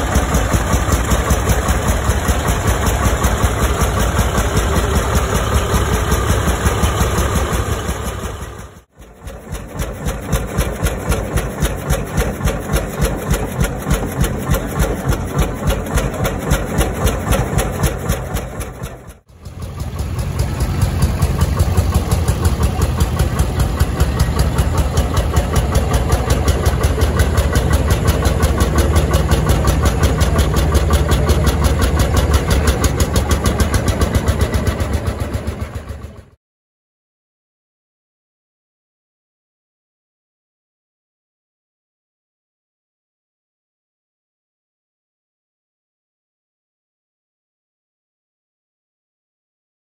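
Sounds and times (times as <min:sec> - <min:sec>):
tractor diesel engine pulsing: 0:00.0 - 0:36.4.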